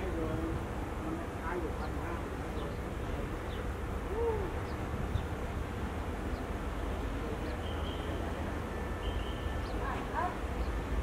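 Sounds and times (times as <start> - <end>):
diesel locomotive rumble: 0.0 - 11.0
faint high bird chirps: 7.4 - 10.8.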